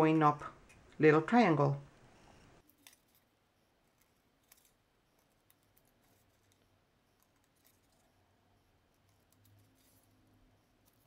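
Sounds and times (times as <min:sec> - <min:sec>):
scissors snipping paper: 0:02.6 - 0:03.3, 0:03.9 - 0:08.1, 0:08.8 - 0:11.0.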